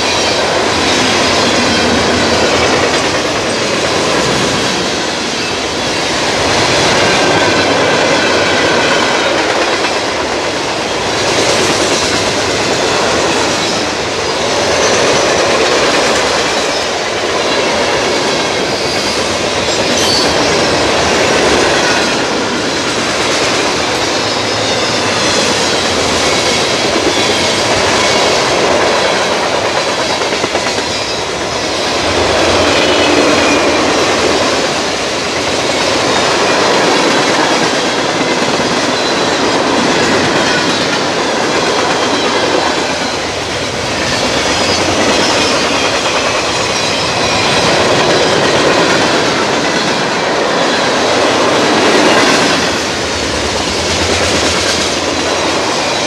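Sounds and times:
train wheels rumbling and rattling: 0.0 - 56.0.

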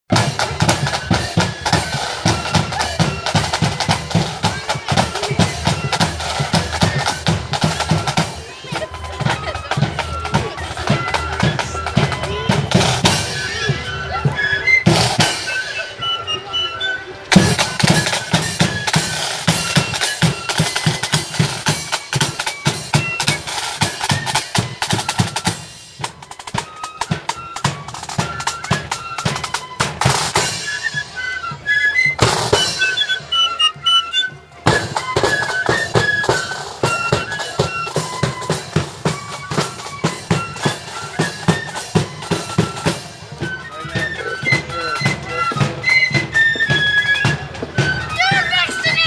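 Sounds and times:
side drums and bass drum: 0.1 - 13.9, 17.3 - 30.9
flutes playing tune: 0.1 - 49.0.

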